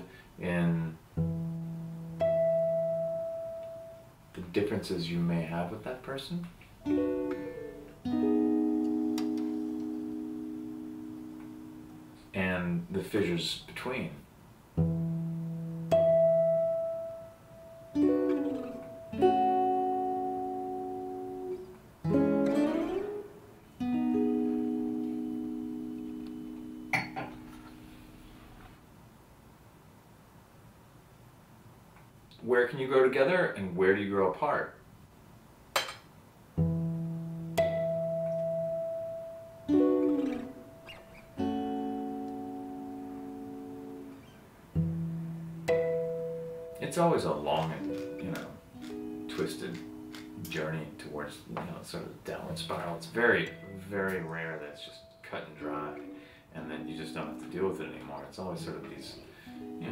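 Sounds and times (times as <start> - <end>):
slow plucked guitar chords: 1.2 - 4.1, 6.8 - 12.4, 14.8 - 28.2, 36.6 - 59.9.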